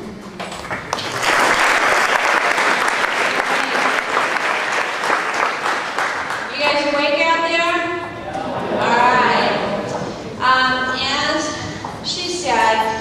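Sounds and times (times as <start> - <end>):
audience applauding: 0.4 - 7.1.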